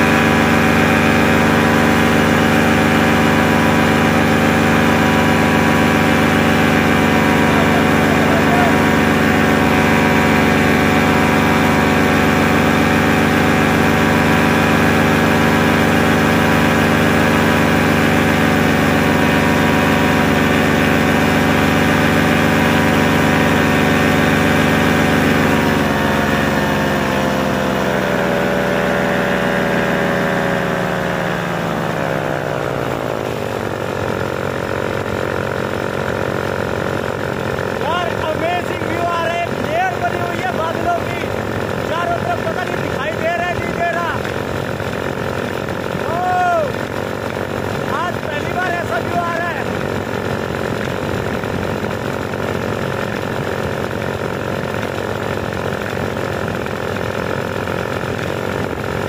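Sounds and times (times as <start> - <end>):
paramotor engine running: 0.0 - 59.0.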